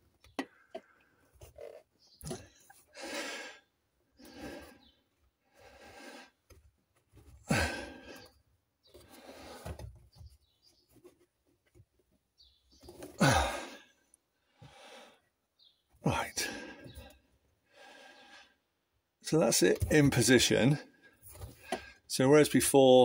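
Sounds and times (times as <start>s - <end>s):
man breathing heavily: 2.4s - 6.4s, 7.4s - 8.4s, 9.0s - 9.8s, 13.2s - 15.3s, 16.1s - 18.7s
man grunting sighs: 7.5s - 8.2s, 13.2s - 13.8s.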